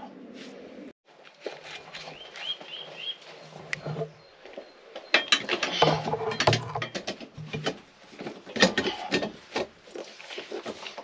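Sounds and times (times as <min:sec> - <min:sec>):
metal frame knocks and clicks: 0:05.1 - 0:07.8.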